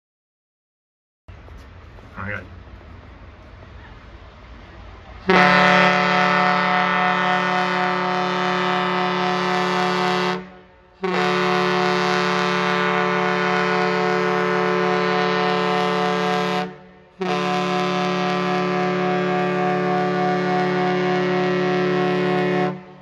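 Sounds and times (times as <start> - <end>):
ship's horn blasts: 4.8 - 23.0.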